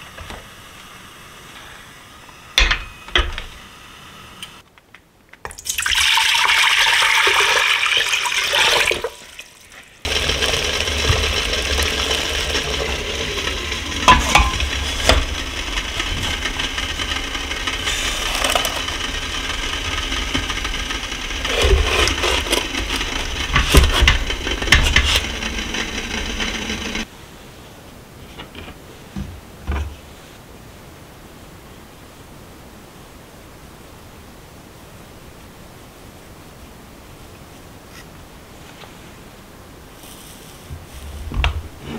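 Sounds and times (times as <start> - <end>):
water pouring into a pot: 5.5 - 15.2
water boiling hard: 5.6 - 27.1.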